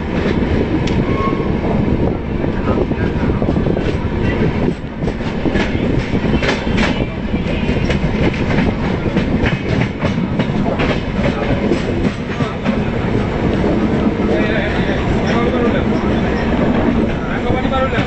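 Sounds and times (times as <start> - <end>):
train coaches rumbling: 0.0 - 18.0.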